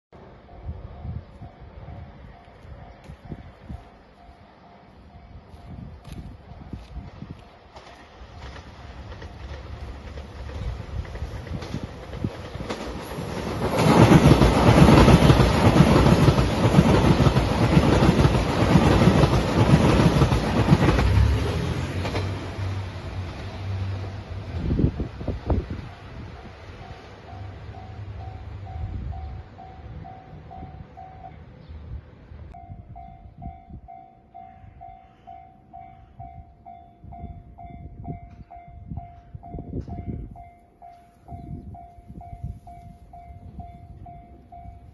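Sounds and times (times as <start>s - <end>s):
diesel train passing at speed: 0.2s - 44.9s
level crossing warning bell: 25.8s - 31.5s, 32.6s - 44.9s.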